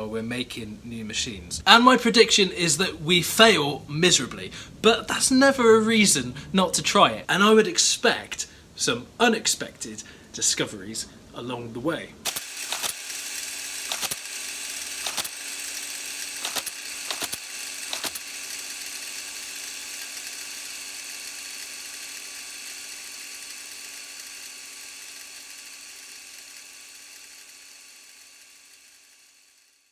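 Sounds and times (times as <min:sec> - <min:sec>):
steady mechanical hum: 0:00.0 - 0:29.9
typewriter typebars clacking: 0:13.9 - 0:14.2, 0:15.0 - 0:15.4, 0:16.4 - 0:18.2.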